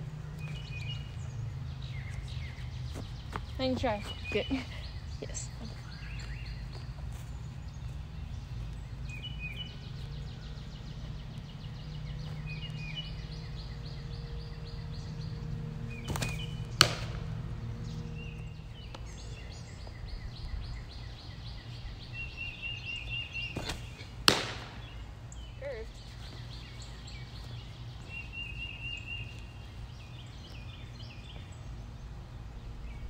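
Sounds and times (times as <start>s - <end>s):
birds chirping: 0.0s - 33.0s
ball smacking into glove: 16.1s - 17.3s, 23.6s - 24.8s.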